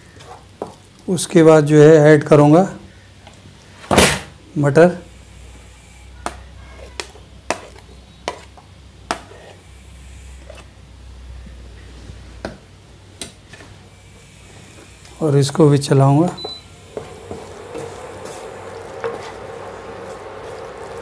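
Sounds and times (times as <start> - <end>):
peas scraped and stirred: 6.3 - 9.6, 10.3 - 10.7, 16.9 - 21.0.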